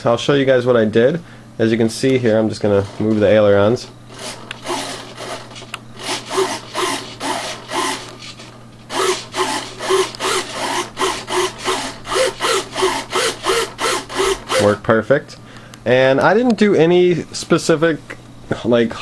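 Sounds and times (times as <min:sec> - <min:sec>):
servos whirring: 0:02.4 - 0:14.8.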